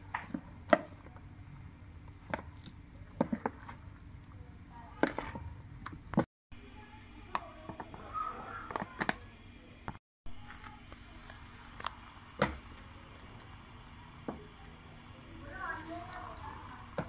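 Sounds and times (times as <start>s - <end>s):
hot oil hissing: 10.4s - 17.0s.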